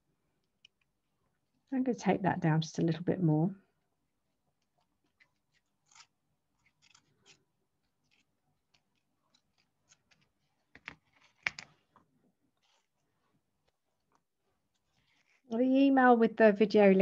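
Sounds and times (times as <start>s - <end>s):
tape rustling on flower stems: 4.5s - 15.6s.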